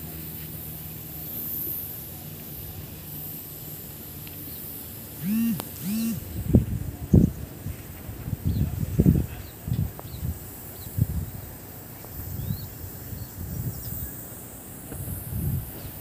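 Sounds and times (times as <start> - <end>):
wind buffeting microphone: 6.4 - 11.5, 12.2 - 14.1, 14.9 - 16.0.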